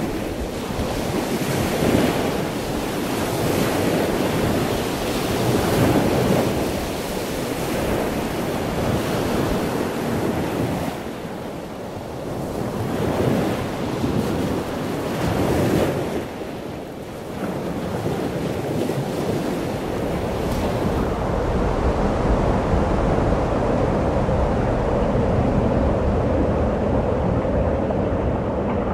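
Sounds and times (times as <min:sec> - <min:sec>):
ocean surf breaking: 0:00.0 - 0:28.9
wind buffeting microphone: 0:00.0 - 0:28.9.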